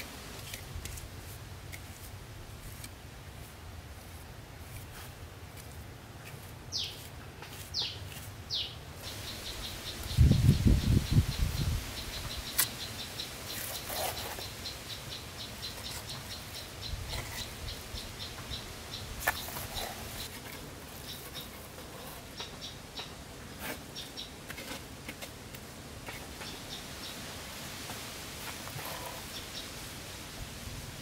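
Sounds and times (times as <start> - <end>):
insect chirping: 8.6 - 20.3.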